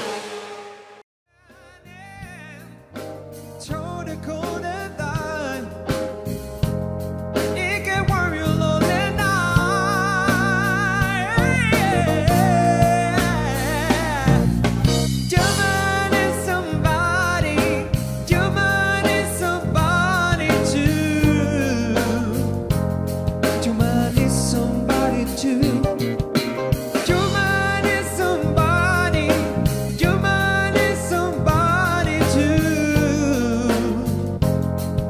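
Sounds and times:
background music with singing: 1.4 - 35.0
bass line and beat: 3.7 - 35.0.

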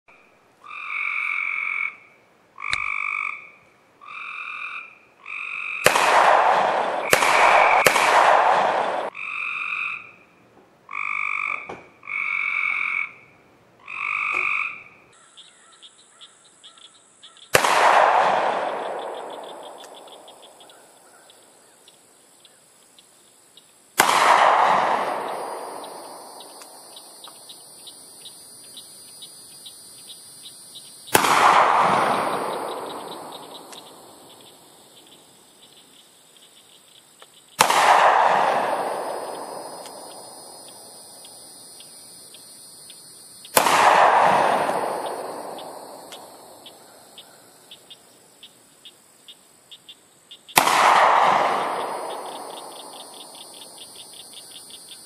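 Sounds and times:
revolver shots echoing: 5.8 - 9.1, 17.5 - 20.3, 24.0 - 27.1, 31.1 - 34.3, 37.6 - 40.9, 43.5 - 46.6, 50.6 - 52.9
high insect buzz: 25.1 - 31.2, 31.8 - 37.6, 38.7 - 43.6, 51.6 - 55.0.

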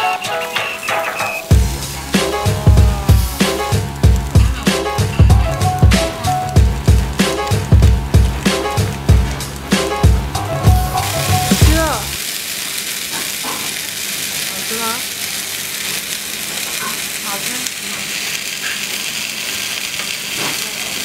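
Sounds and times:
music with a beat: 0.0 - 12.0
meat sizzling on grill plate: 0.0 - 21.0.

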